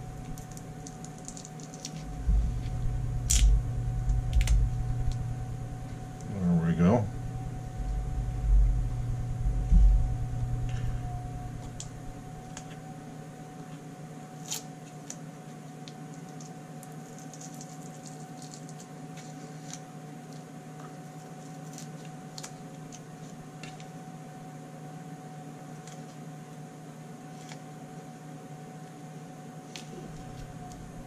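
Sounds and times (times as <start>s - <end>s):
wrapping crinkling: 0.0s - 5.3s, 15.8s - 20.4s
steady hum: 0.0s - 31.0s
low handling thumps: 2.0s - 6.3s, 6.9s - 12.2s.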